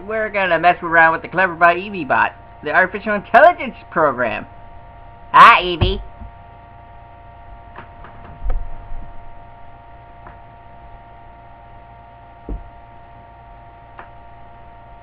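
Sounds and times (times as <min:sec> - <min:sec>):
electrical mains hum: 0:00.0 - 0:15.0
soft low thumps: 0:05.7 - 0:06.4, 0:12.4 - 0:12.9.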